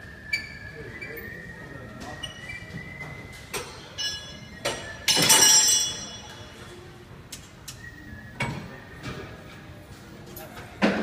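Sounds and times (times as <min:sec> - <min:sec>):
metal and glass clinking: 0:03.5 - 0:06.6
ringing clatter: 0:03.7 - 0:06.6.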